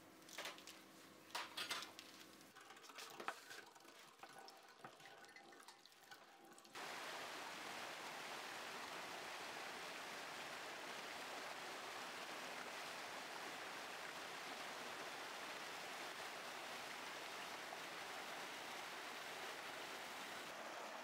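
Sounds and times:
waterfall splashing into pool: 0:06.7 - 0:21.0.

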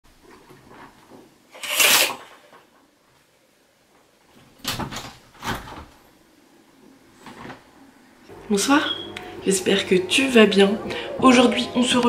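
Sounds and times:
curtains swishing along rail: 0:01.5 - 0:02.4.

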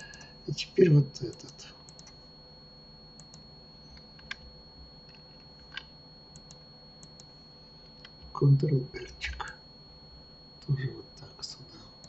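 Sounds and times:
computer keyboard and mouse clicks: 0:04.0 - 0:04.4.

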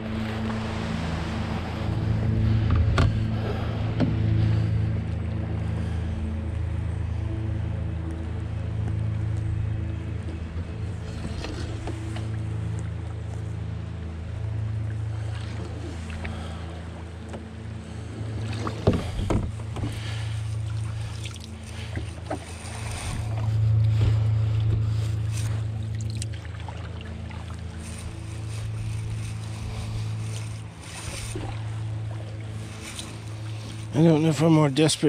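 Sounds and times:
water rushing along hull: 0:00.0 - 0:35.0
knocks and splashes: 0:18.4 - 0:23.3.

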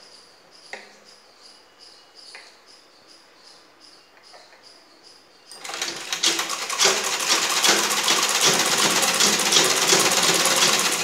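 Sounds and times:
sewing machine stitching: 0:05.5 - 0:11.0.

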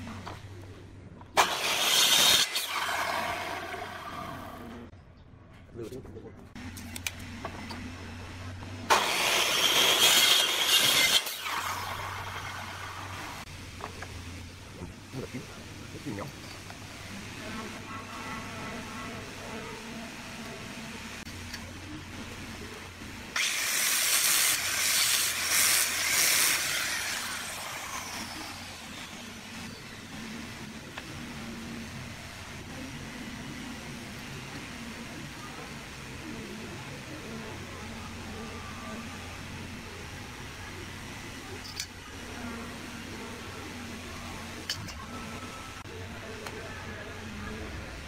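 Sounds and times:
angle grinder sanding wood: 0:01.4 - 0:04.8, 0:08.9 - 0:13.5, 0:23.4 - 0:32.1
mitre saw cutting wood: 0:01.4 - 0:04.8, 0:08.9 - 0:13.5, 0:23.4 - 0:29.7
saw blade winding down whine: 0:01.4 - 0:04.9, 0:08.9 - 0:13.4, 0:23.4 - 0:30.9.

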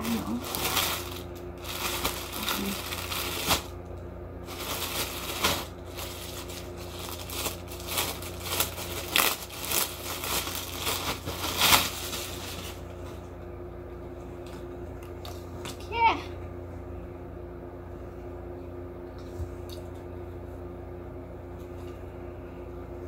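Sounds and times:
plastic bag crinkling: 0:00.0 - 0:03.8, 0:04.4 - 0:12.9.

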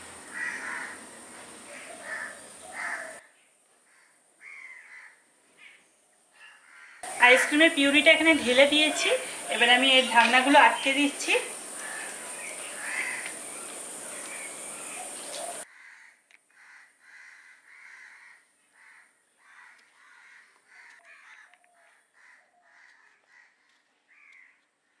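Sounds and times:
steady hiss: 0:00.0 - 0:03.2, 0:07.0 - 0:15.6
birds cawing: 0:00.2 - 0:03.3, 0:03.9 - 0:05.8, 0:06.4 - 0:24.6.

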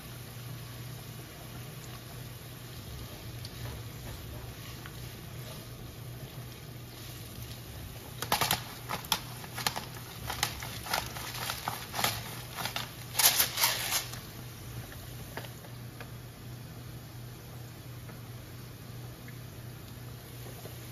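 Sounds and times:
steady low hum: 0:00.0 - 0:20.9
pepper grinder crunching: 0:08.2 - 0:14.3.

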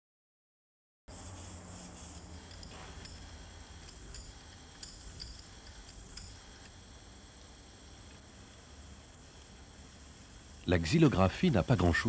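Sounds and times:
ink roller hissing strokes: 0:01.1 - 0:06.6
low steady hum: 0:01.1 - 0:12.0.

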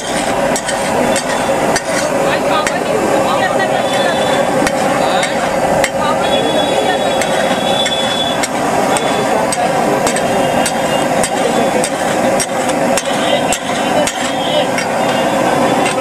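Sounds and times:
metal spatula scraping griddle: 0:00.0 - 0:02.8
food sizzling: 0:00.0 - 0:16.0.

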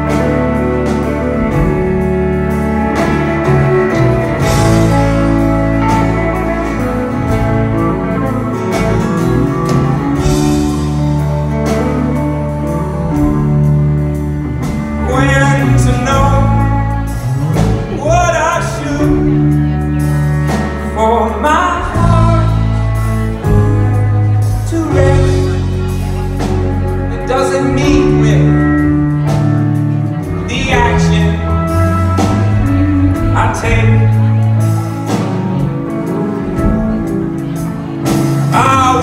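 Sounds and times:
live folk-rock band playing: 0:00.0 - 0:39.0
man singing: 0:15.0 - 0:19.5, 0:20.8 - 0:25.9, 0:27.1 - 0:28.8, 0:30.4 - 0:31.8, 0:32.6 - 0:34.4, 0:38.5 - 0:39.0.

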